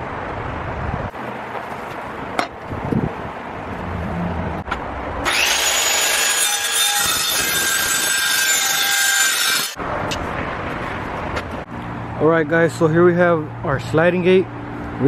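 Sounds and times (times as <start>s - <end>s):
circular saw cutting wood: 5.2s - 9.8s.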